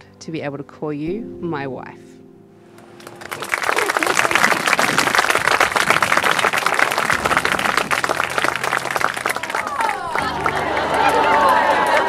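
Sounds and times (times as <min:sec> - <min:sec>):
guests applauding: 0:02.8 - 0:12.0
voices: 0:03.4 - 0:07.0.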